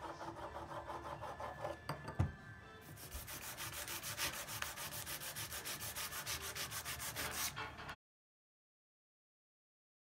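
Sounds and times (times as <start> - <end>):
sandpaper rubbing on wood: 2.9 - 7.6.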